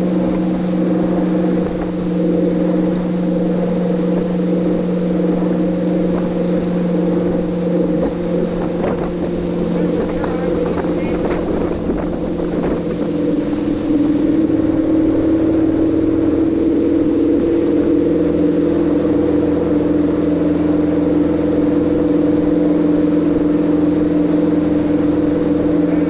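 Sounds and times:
boat engine running: 0.0s - 26.0s
rushing wake water: 0.0s - 26.0s.

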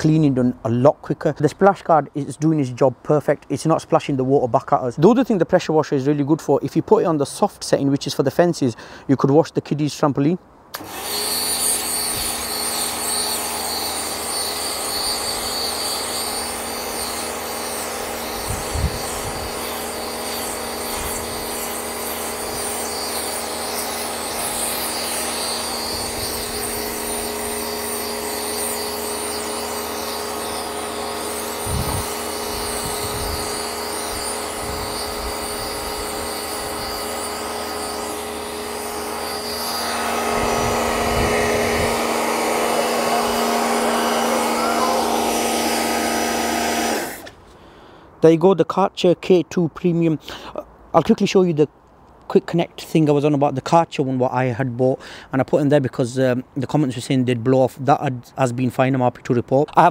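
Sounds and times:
pressure washer motor humming: 10.7s - 47.4s
water jet spraying onto mat: 13.5s - 47.4s.

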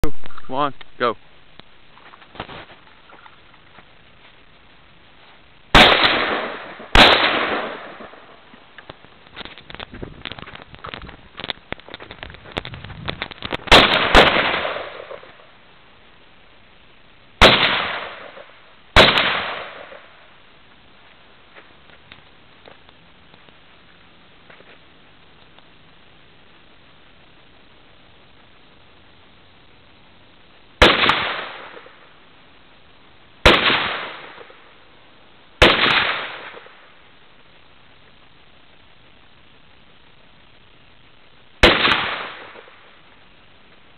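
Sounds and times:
rifle shots with echo: 5.7s - 8.4s, 13.6s - 15.4s, 17.4s - 20.1s, 30.8s - 32.0s, 33.4s - 34.6s, 35.6s - 36.7s, 41.6s - 42.8s.

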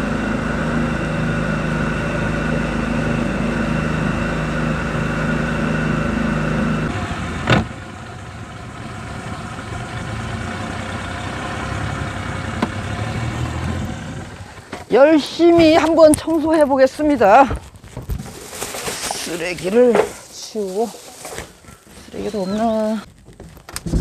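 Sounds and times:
outboard engine running: 0.0s - 15.9s.

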